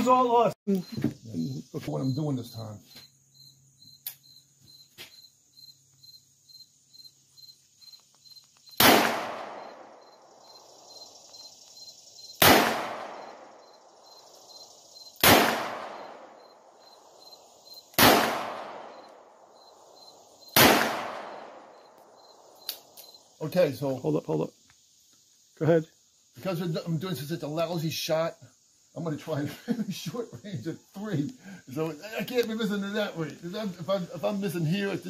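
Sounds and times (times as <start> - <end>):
crickets chirping: 0.0 - 35.0
revolver shots echoing: 8.8 - 9.8, 12.4 - 13.4, 15.2 - 16.2, 18.0 - 18.9, 20.6 - 21.5.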